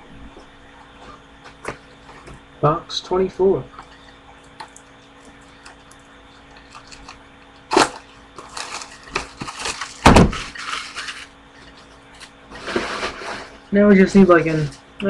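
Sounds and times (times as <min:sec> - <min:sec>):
paper packaging crinkling: 0:05.4 - 0:13.6.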